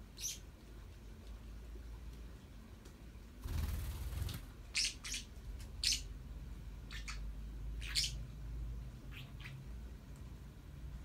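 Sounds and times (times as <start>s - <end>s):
parakeets chirping: 0.0s - 0.5s, 4.3s - 8.4s, 9.0s - 9.8s.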